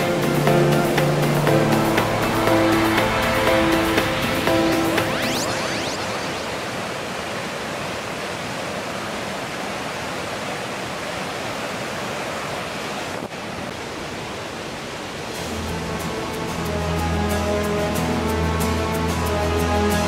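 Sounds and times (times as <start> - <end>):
music: 0.0 - 6.4, 15.4 - 20.0
water rushing over rocks: 0.0 - 20.0.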